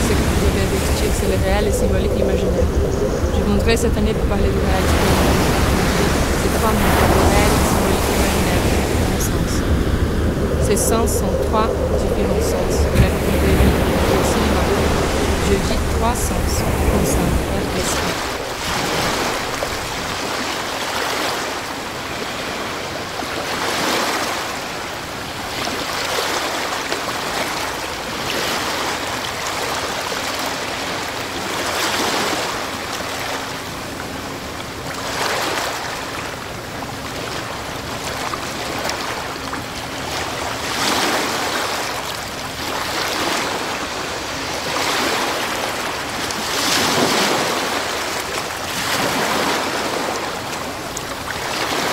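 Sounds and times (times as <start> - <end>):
sea waves washing in: 0.0 - 51.9.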